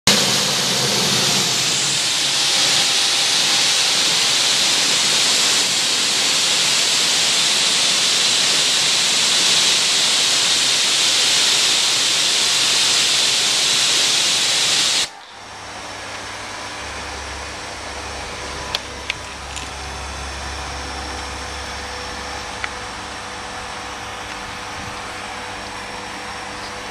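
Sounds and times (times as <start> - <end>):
hose spraying water on car: 0.1 - 15.1.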